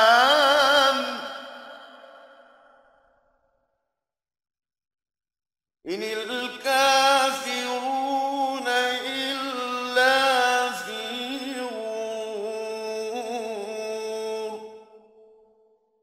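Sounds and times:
man chanting melodic recitation: 5.9 - 14.7.

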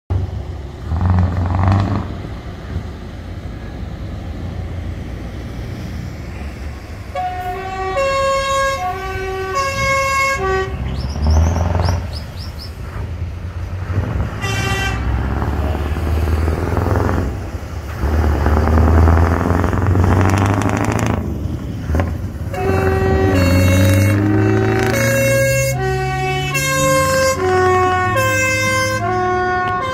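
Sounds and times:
truck diesel engine rumble: 0.1 - 29.9
two-note air horn blasts: 7.1 - 10.9, 22.5 - 29.9.

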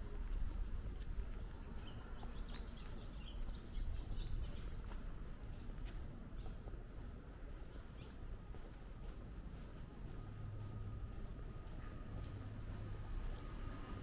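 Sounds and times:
small birds chirping: 1.0 - 8.8.

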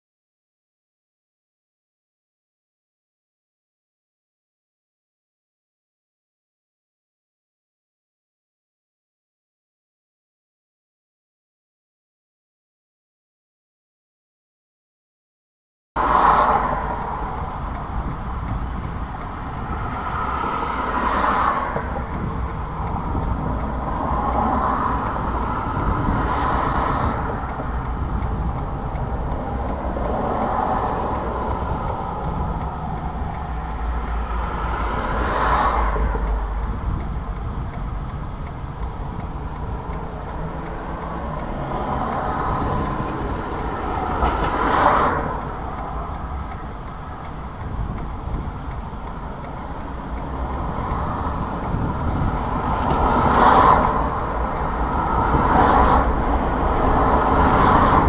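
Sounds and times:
traffic rumble: 16.0 - 58.0
vehicles passing: 16.0 - 58.0.

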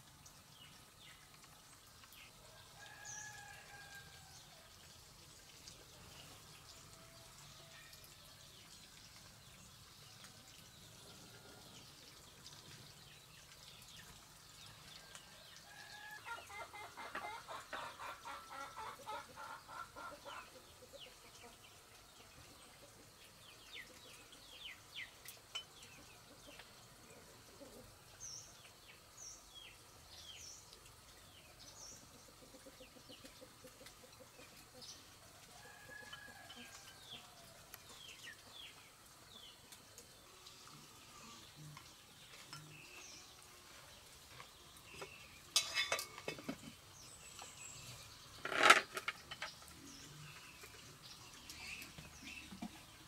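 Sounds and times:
chickens clucking: 16.3 - 21.7, 25.9 - 28.0, 32.0 - 37.3.

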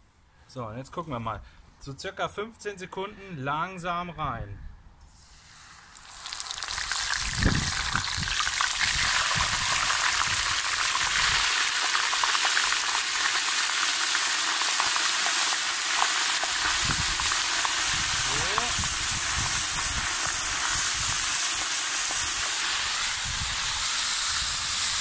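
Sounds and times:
deep-frying oil sizzling: 5.2 - 25.0.

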